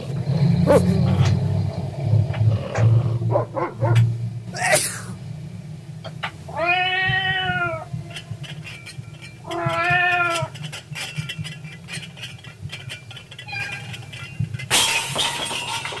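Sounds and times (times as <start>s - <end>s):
recorded cat meowing: 6.5s - 7.9s, 9.5s - 10.5s.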